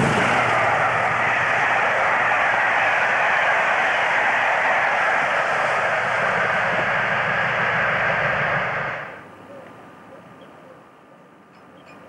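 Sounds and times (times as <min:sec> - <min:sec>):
low rumble: 0:00.0 - 0:09.2
train wheels rushing on rails: 0:00.0 - 0:09.4.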